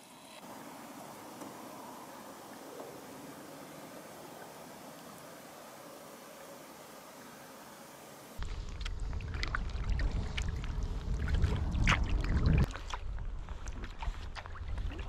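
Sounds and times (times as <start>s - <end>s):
low rumble: 8.4s - 14.8s
water dripping and splashing: 8.4s - 15.0s.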